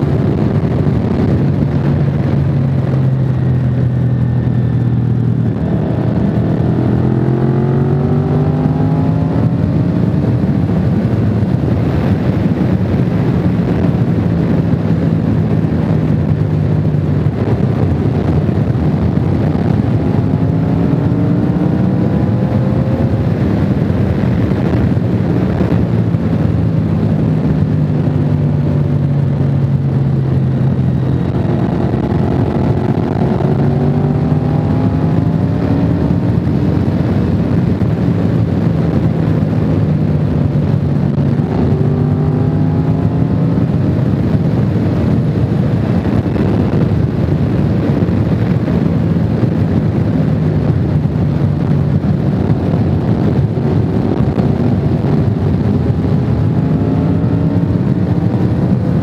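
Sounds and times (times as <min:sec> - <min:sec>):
motorcycle engine cruising: 0:00.0 - 0:59.0
wind and road noise: 0:00.0 - 0:59.0.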